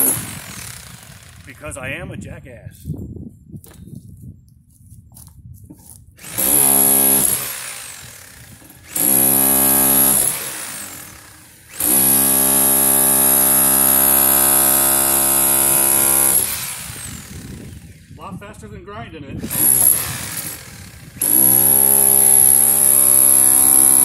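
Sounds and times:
jackhammer hammering sheet metal: 0.0s - 1.6s, 6.2s - 18.1s, 19.4s - 24.0s.

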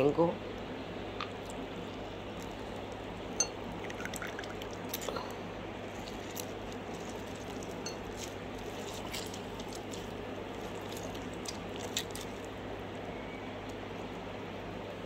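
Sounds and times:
steady low hum: 0.0s - 15.0s
juice dripping into bowl: 1.2s - 12.6s
orange squelching: 3.7s - 12.6s.

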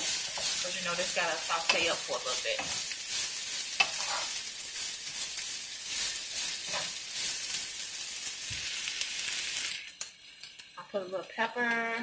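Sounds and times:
wooden spoon scraping a pan: 0.0s - 7.6s
vegetables sizzling in a frying pan: 0.0s - 12.0s.

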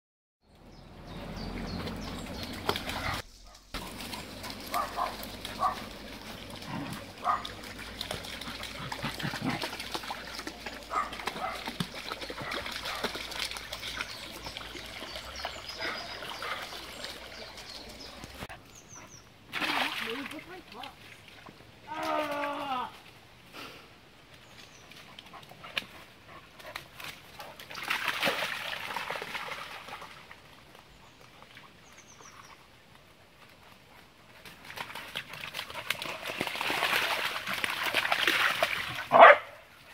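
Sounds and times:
dogs splashing through water: 1.0s - 23.2s, 24.3s - 39.9s
running water trickling: 1.1s - 18.9s.

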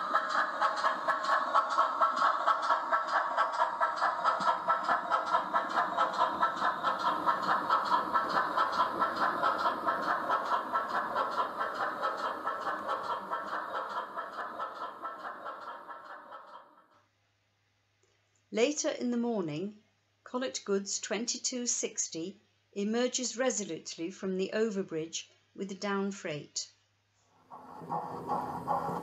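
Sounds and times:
steam locomotive chuffing: 0.0s - 16.7s, 27.5s - 29.0s.

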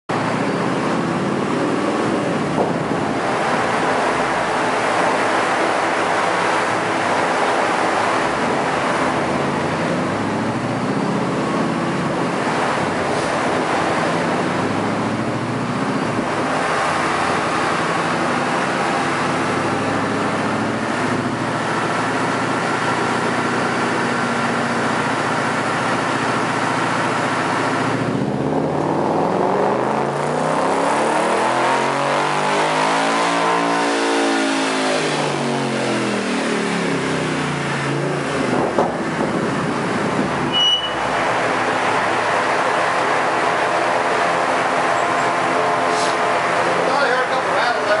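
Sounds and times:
car engine revving under load: 0.1s - 48.0s
loud rushing noise: 0.2s - 48.0s.

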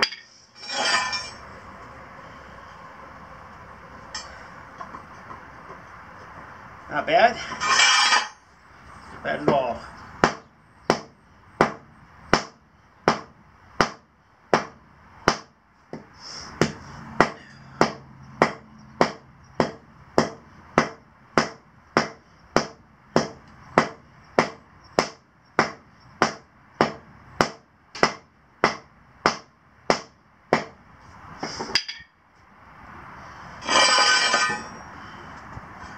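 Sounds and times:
sledgehammer pounding asphalt: 10.2s - 30.8s.

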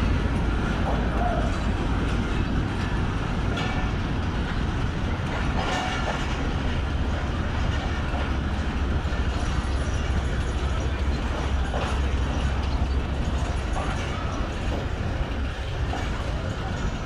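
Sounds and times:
train wheels rumbling over rails: 0.0s - 17.0s
wheel squeals: 9.3s - 17.0s.

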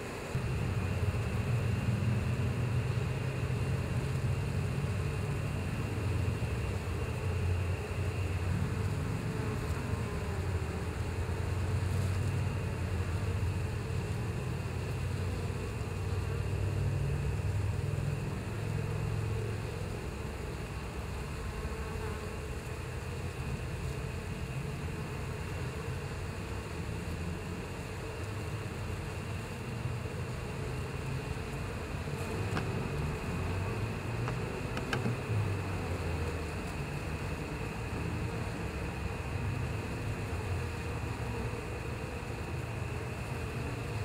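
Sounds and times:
honeybees buzzing: 0.0s - 44.0s.

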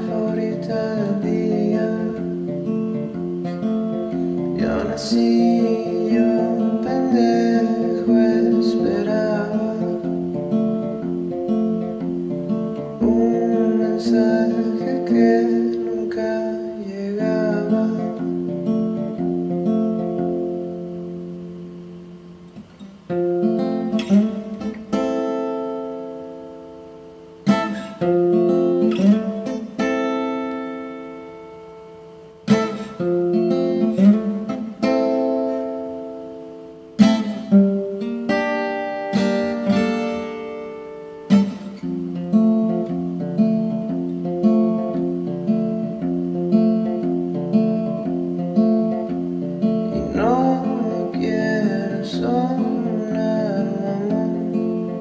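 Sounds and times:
man singing: 0.0s - 2.6s, 4.6s - 10.5s, 12.8s - 18.5s, 49.9s - 55.0s
picked acoustic guitar: 0.0s - 55.0s
strummed guitar chords ringing: 0.0s - 55.0s.

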